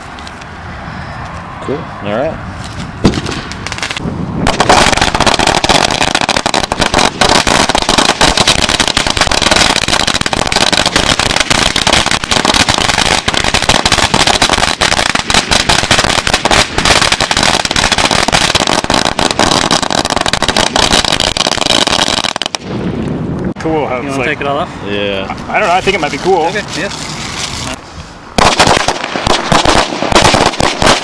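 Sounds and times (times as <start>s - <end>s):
string of firecrackers banging: 2.6s - 23.2s, 28.4s - 31.0s.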